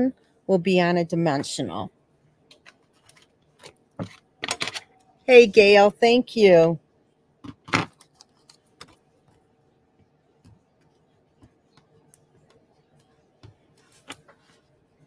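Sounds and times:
paper handling clicks and rustles: 7.5 - 9.0.

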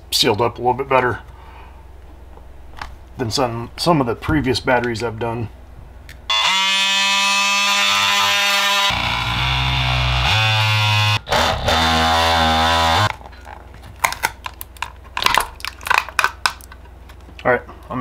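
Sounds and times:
oscillating multi-tool buzzing: 6.3 - 13.1.

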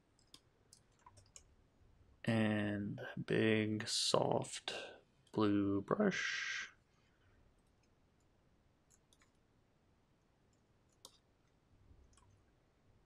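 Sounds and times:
faint clicks: 8.9 - 9.4.

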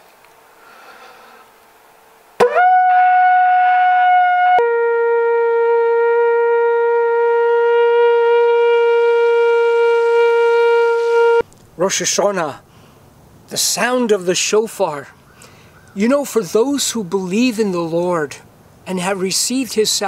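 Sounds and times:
ram's horn blast: 2.4 - 11.4.

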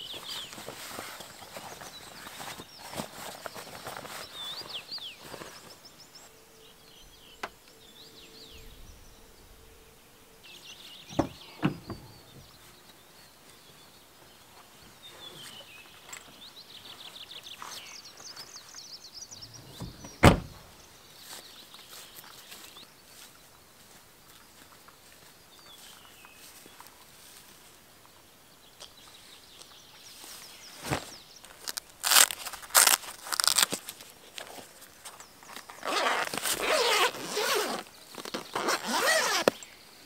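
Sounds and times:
small birds singing: 0.0 - 40.0
car door shutting: 11.1 - 12.2, 19.6 - 20.7.

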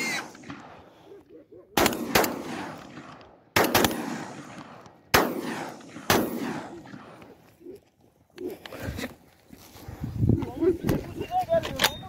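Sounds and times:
gunshots with echo: 0.0 - 1.0, 1.8 - 7.4.

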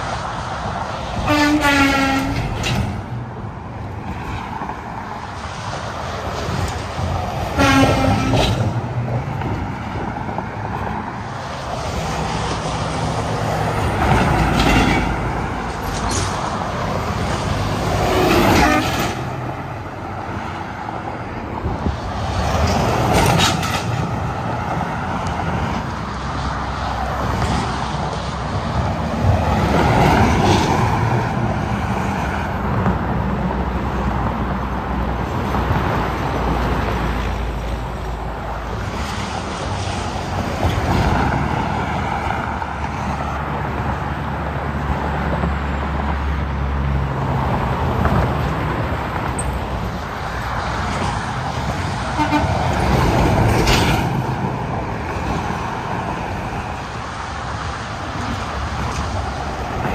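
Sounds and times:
trucks passing: 0.0 - 59.9
horn blast: 7.6 - 8.6, 52.2 - 52.6.

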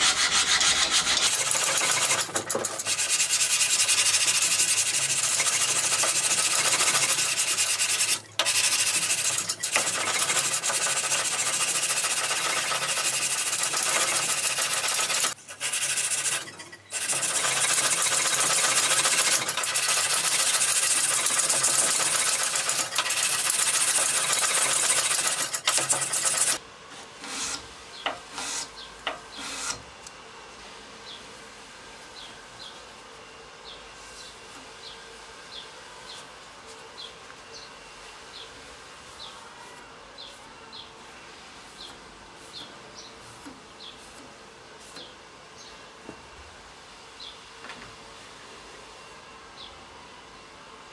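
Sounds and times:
sandpaper scratching steel: 0.0 - 26.6.

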